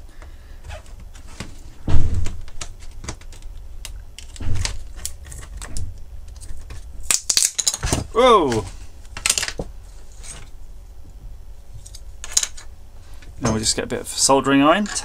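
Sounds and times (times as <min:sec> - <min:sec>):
heavy bump: 0:01.8 - 0:02.4.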